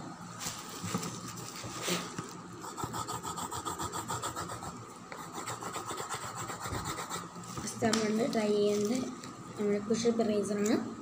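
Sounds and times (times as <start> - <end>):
rubbing on drawing paper: 1.7 - 7.3.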